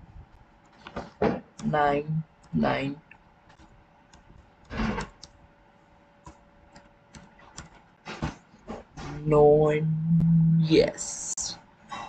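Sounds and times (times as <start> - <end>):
keyboard keys clicking: 6.2 - 7.8.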